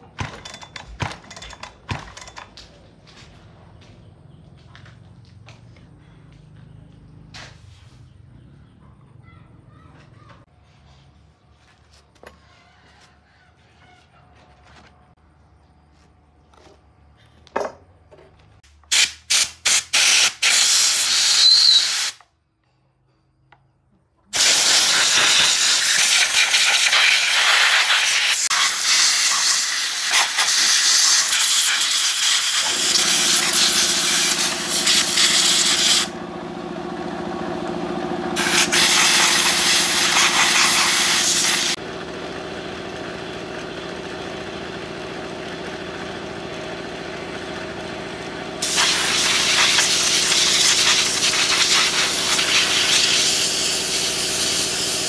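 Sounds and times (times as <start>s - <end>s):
compressed air hissing: 18.9s - 22.2s, 24.4s - 36.1s, 38.4s - 41.8s, 48.6s - 55.0s
air compressor humming: 24.3s - 55.0s.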